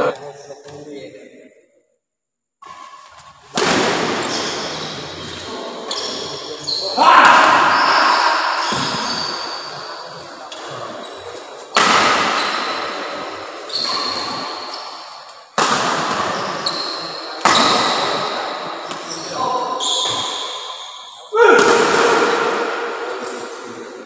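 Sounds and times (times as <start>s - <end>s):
shoe squeaks on court: 4.2s - 7.0s, 7.9s - 11.4s, 13.7s - 15.4s, 16.1s - 18.2s, 18.8s - 21.3s.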